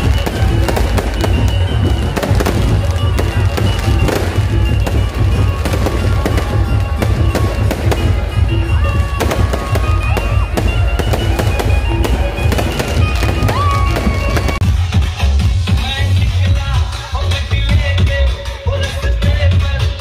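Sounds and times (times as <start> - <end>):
fireworks cracking and popping: 0.0 - 14.8
loud bass-heavy music: 0.0 - 20.0.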